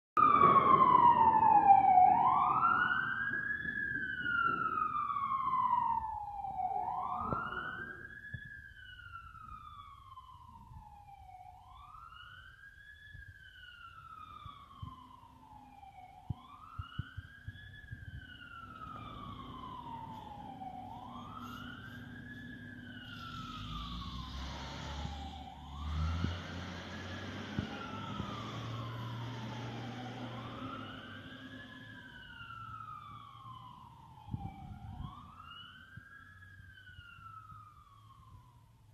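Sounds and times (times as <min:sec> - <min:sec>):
siren wailing: 0:00.2 - 0:38.7
low engine rumble: 0:17.5 - 0:33.6.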